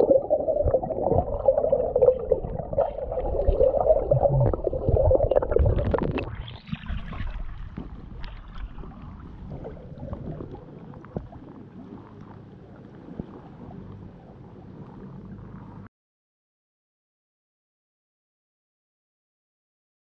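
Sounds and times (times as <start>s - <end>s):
water sloshing from dog swimming: 0.0s - 15.9s.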